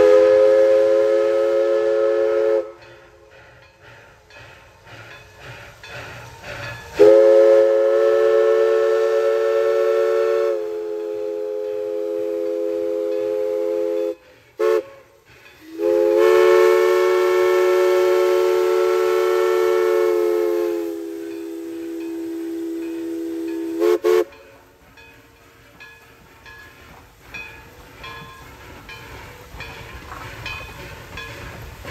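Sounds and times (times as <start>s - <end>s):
steam whistle chime: 0.0s - 3.2s, 6.9s - 26.8s
steam hissing: 0.0s - 31.9s.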